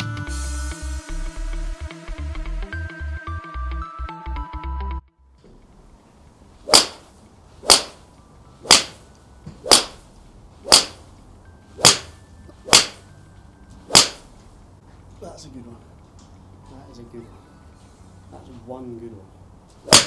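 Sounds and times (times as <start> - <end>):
electronic music: 0.0 - 5.0
golf club striking ball: 6.6 - 11.2, 11.8 - 13.1, 13.8 - 14.4, 19.8 - 20.0.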